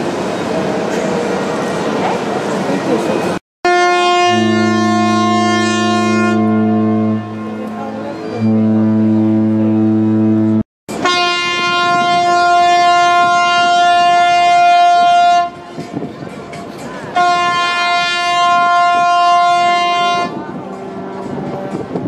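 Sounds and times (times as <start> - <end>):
deep ship horn blast: 3.6 - 15.8, 17.1 - 22.0
higher-pitched ship horn: 3.6 - 15.8, 17.1 - 22.0.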